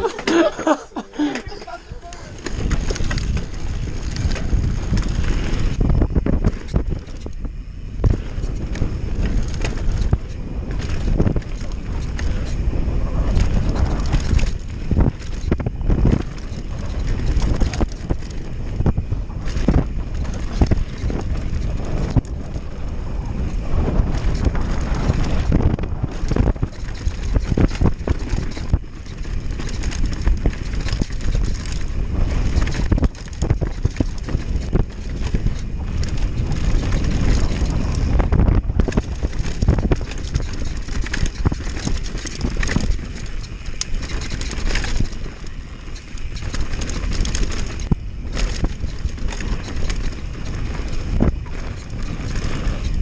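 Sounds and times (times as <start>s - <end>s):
bike knocks and rattles: 0.0s - 53.0s
wind buffeting microphone: 0.0s - 53.0s.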